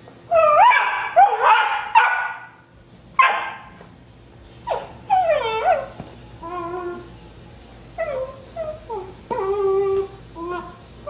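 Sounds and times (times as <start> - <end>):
puppy yipping and whining: 0.3 - 2.4, 3.1 - 7.1, 8.0 - 11.0.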